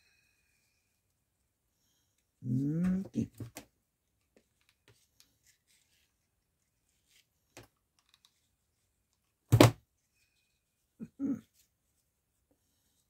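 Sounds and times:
faint clicks and rustles: 0:03.4 - 0:09.4.

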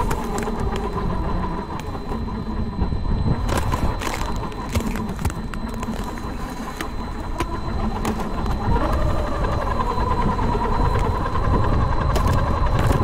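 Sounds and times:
ice chips cracking and ticking: 0:00.0 - 0:01.1, 0:01.7 - 0:02.2, 0:03.4 - 0:09.1, 0:12.1 - 0:13.0
ice crunching under tyres: 0:00.0 - 0:02.3, 0:03.4 - 0:09.2, 0:12.1 - 0:13.0
electric motor whining: 0:00.0 - 0:13.0.

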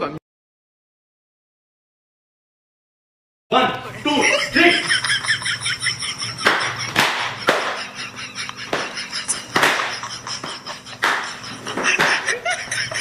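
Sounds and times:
sharp cracks: 0:06.4 - 0:07.8, 0:09.6 - 0:10.0.

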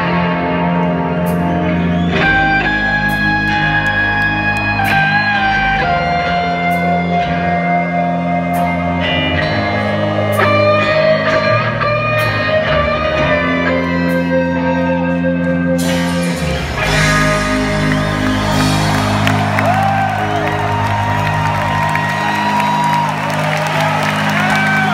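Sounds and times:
electric guitar sustained notes: 0:00.0 - 0:24.9
live rock band playing: 0:00.0 - 0:24.9
crowd cheering: 0:00.8 - 0:11.8, 0:16.2 - 0:24.9.

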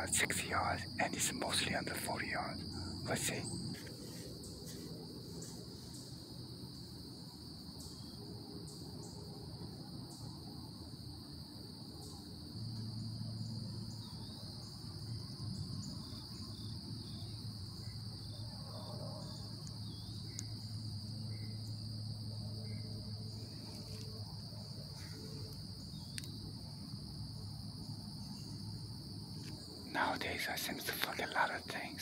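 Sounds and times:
low steady hum: 0:00.0 - 0:06.9
insects trilling: 0:00.0 - 0:32.0
faint ticks: 0:19.2 - 0:20.9, 0:23.4 - 0:26.6.

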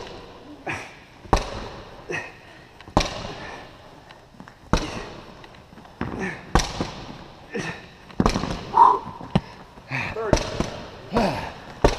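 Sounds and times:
medicine ball thudding against wall: 0:01.3 - 0:01.8.

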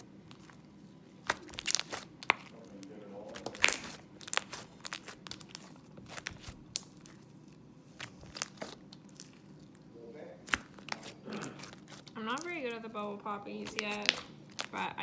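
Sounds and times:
slime clicking and popping: 0:01.2 - 0:02.5, 0:03.3 - 0:07.2, 0:08.0 - 0:09.4, 0:10.4 - 0:12.5, 0:13.6 - 0:14.9.

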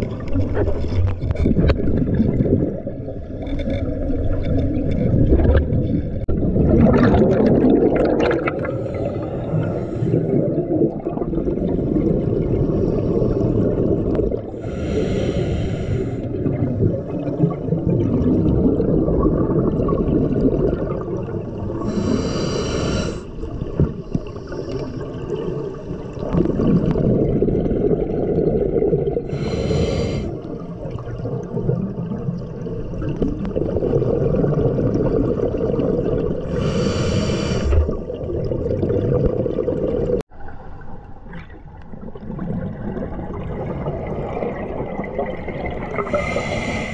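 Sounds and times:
bubbles gurgling underwater: 0:00.0 - 0:15.0, 0:16.2 - 0:22.4, 0:23.2 - 0:46.9
regulator inhalation hiss: 0:14.6 - 0:16.2, 0:21.9 - 0:23.3, 0:29.3 - 0:30.3, 0:36.5 - 0:37.8, 0:46.1 - 0:46.9.

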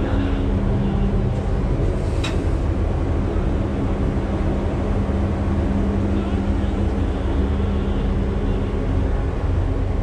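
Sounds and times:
elevator rumble and hum: 0:00.0 - 0:10.0.

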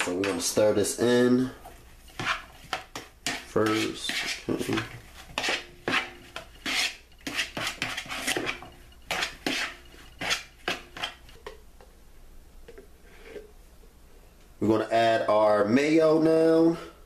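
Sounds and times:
metal spoon scraping a bowl: 0:02.0 - 0:11.6.

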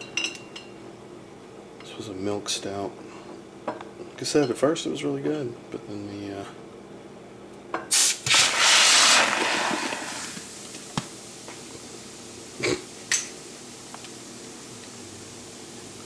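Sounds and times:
gas and foam hissing: 0:07.9 - 0:16.0.

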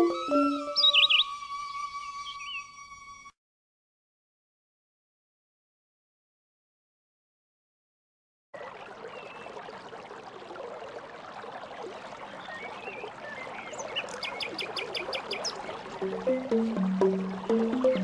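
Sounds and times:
plucked background music: 0:00.0 - 0:03.2, 0:15.9 - 0:18.0
running water stream: 0:08.6 - 0:18.0
high ticking clicks: 0:15.9 - 0:18.0.

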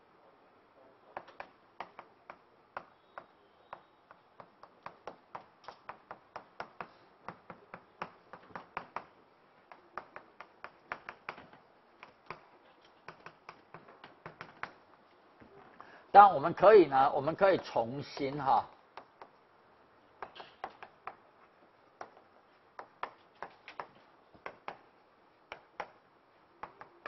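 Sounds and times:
chalk tapping on chalkboard: 0:01.2 - 0:14.9, 0:18.2 - 0:19.5, 0:20.2 - 0:21.2, 0:21.9 - 0:26.0, 0:26.6 - 0:27.0.

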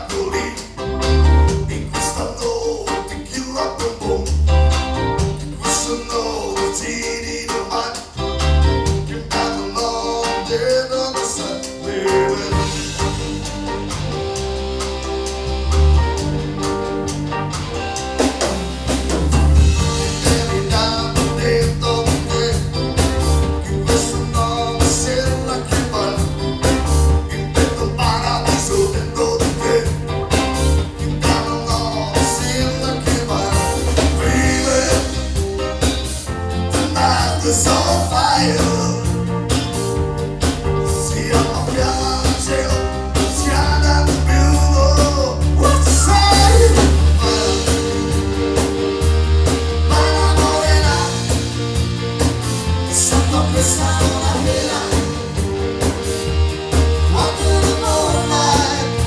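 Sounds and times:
person singing: 0:00.0 - 0:00.8, 0:01.5 - 0:04.5, 0:05.5 - 0:08.2, 0:09.0 - 0:13.6, 0:19.9 - 0:35.5, 0:36.7 - 0:39.3, 0:40.8 - 0:48.8, 0:49.8 - 0:51.6, 0:52.9 - 0:55.6, 0:57.0 - 0:59.0
live band playing: 0:00.0 - 0:59.0.

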